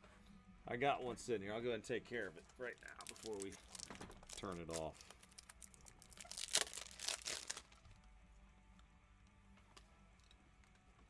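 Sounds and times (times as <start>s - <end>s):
plastic packaging crinkling: 2.8s - 7.8s
faint low hum: 6.9s - 11.0s.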